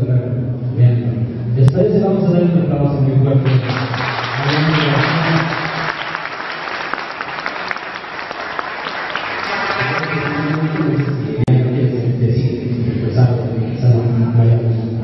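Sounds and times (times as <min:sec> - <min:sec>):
audience applauding: 0:03.4 - 0:11.5.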